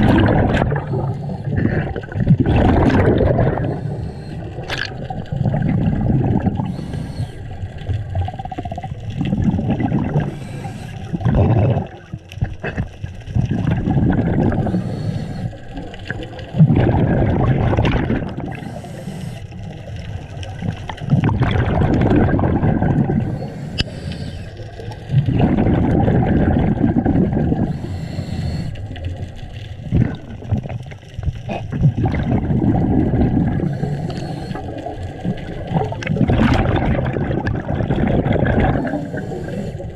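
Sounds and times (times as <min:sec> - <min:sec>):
bubbles gurgling underwater: 0:00.0 - 0:18.8, 0:19.6 - 0:23.9, 0:24.7 - 0:27.9, 0:28.8 - 0:39.9
regulator hiss: 0:06.6 - 0:07.4, 0:10.3 - 0:11.1, 0:14.7 - 0:15.6, 0:18.5 - 0:19.6, 0:23.3 - 0:24.7, 0:27.6 - 0:28.9, 0:33.7 - 0:34.8.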